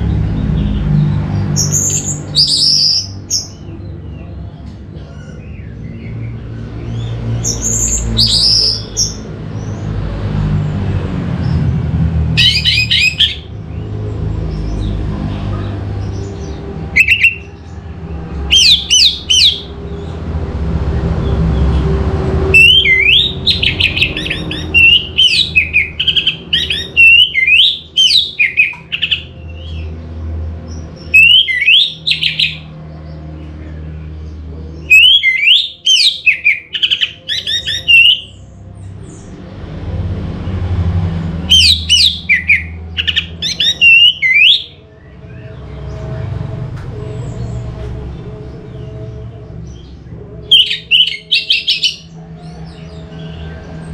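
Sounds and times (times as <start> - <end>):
thrush singing whistled notes: 0.0 - 4.2, 5.3 - 9.8, 12.4 - 15.0, 16.0 - 17.7, 18.3 - 20.2, 21.2 - 29.9, 30.7 - 32.7, 34.8 - 39.3, 41.4 - 53.9.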